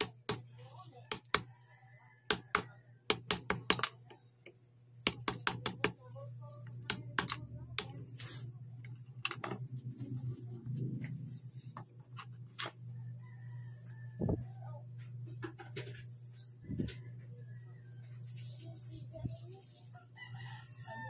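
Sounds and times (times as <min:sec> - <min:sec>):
steady low hum: 0:00.0 - 0:21.0
clicks and taps of handled tools: 0:02.3 - 0:06.0.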